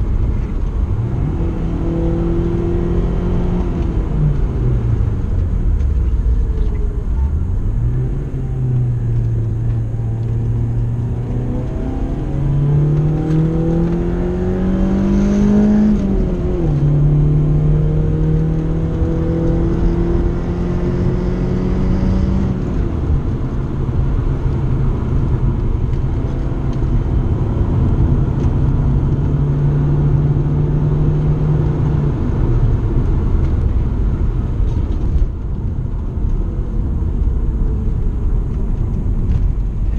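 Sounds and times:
car engine revving: 0:00.0 - 0:39.9.

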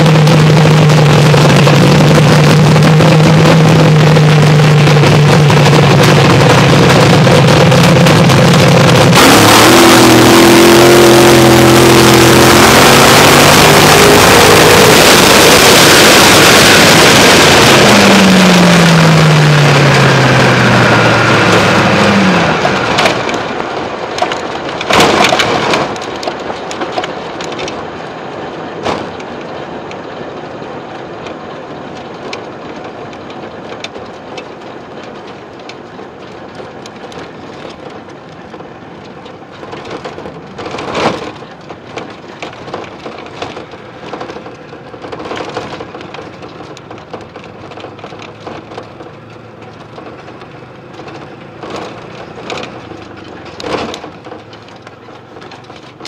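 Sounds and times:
rolling noise: 0:00.0 - 0:56.0
rushing wind: 0:00.0 - 0:56.0
knocks and rattles: 0:22.6 - 0:56.0.

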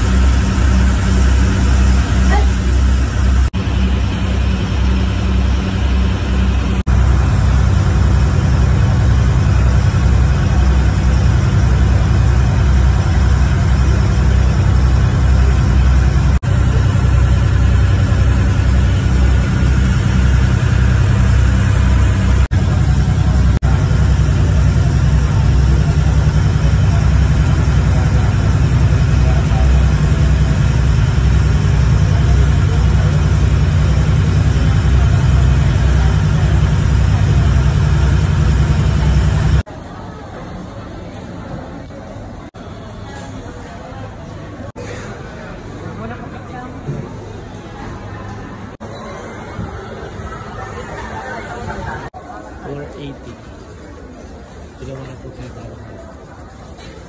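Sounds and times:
ferry engine droning: 0:00.0 - 0:40.5
wind: 0:00.0 - 0:57.0.

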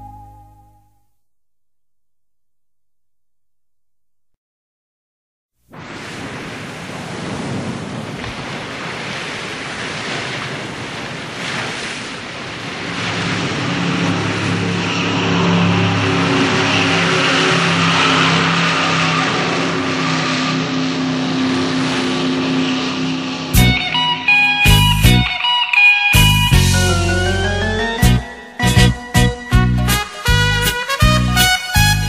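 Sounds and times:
rushing noise: 0:12.6 - 0:25.6
droning low hum: 0:13.0 - 0:25.3.

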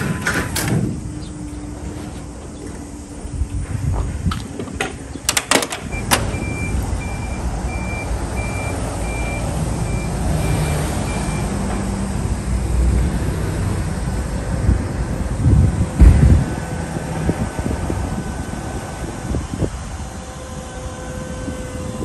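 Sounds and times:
low engine rumble: 0:00.0 - 0:22.0
metallic clanks of truck gate: 0:04.3 - 0:06.7
forklift warning beeper: 0:05.8 - 0:11.6.

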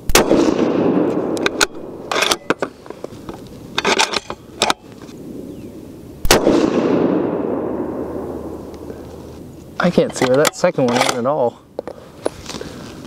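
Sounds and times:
rifle shot echoing: 0:00.1 - 0:02.2, 0:06.2 - 0:09.0.

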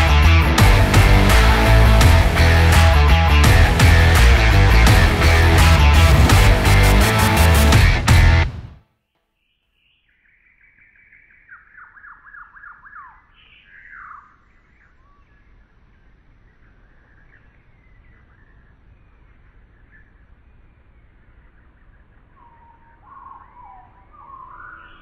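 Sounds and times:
songbird singing: 0:09.1 - 0:25.0
faint low rumble: 0:14.2 - 0:25.0.

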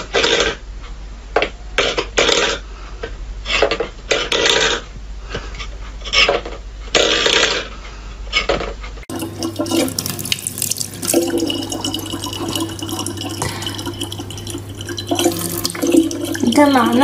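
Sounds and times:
low steady hum: 0:08.8 - 0:17.0
tap water running into plastic bottle: 0:09.1 - 0:17.0.

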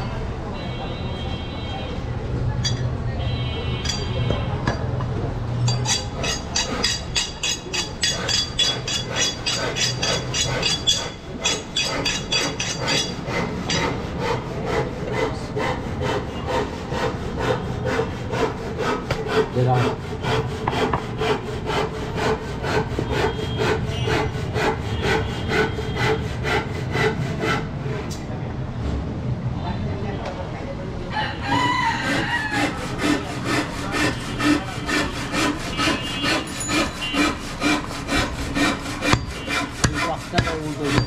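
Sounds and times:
knife scraping on sharpening rod: 0:05.6 - 0:14.3, 0:32.5 - 0:41.0.

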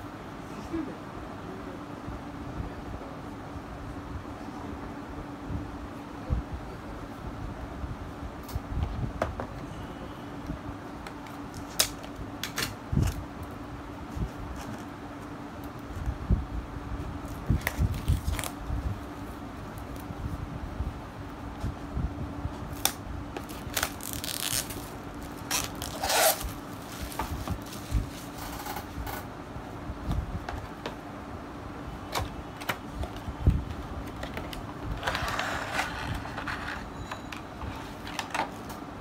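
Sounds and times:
plastic crinkling: 0:17.6 - 0:18.6, 0:22.8 - 0:28.4.

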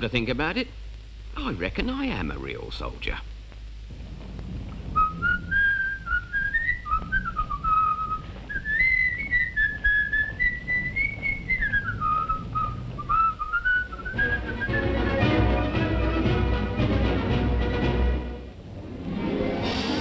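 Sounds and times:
person whistling a tune: 0:05.0 - 0:15.1.

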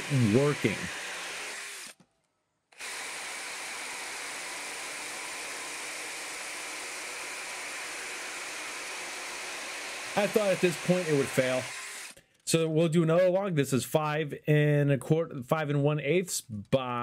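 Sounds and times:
chainsaw cutting through log: 0:00.0 - 0:02.0, 0:02.8 - 0:12.2.

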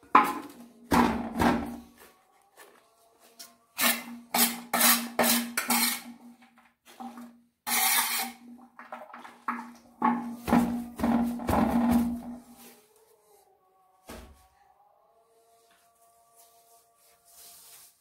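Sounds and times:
trowel scraping metal tray: 0:03.8 - 0:06.3, 0:06.9 - 0:08.6.

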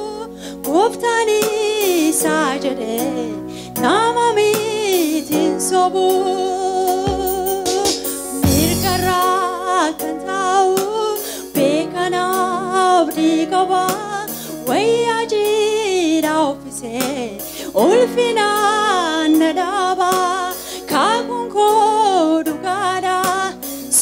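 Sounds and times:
sustained instrumental accompaniment: 0:06.9 - 0:09.4
percussion beat: 0:07.0 - 0:09.2.

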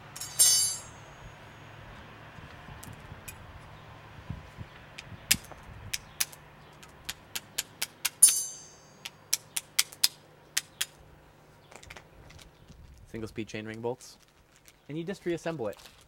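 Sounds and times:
metal bolts clicking and clinking: 0:00.0 - 0:01.2, 0:07.6 - 0:11.0.

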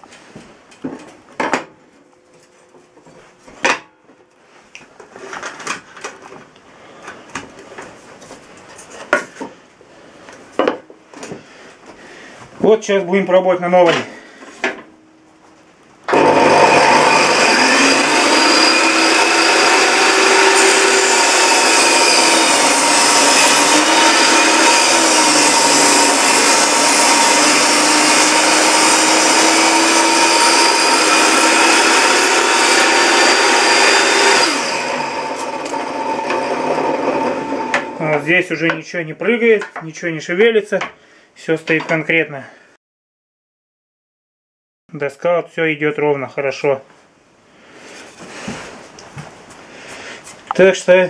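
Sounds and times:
circular saw ripping wood: 0:16.1 - 0:38.4.

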